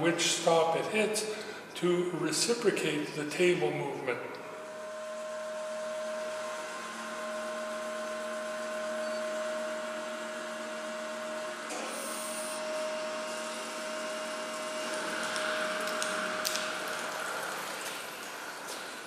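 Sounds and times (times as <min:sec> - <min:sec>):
grinder machine humming and whining: 0:04.4 - 0:18.7
coolant hissing and splashing: 0:13.2 - 0:19.0.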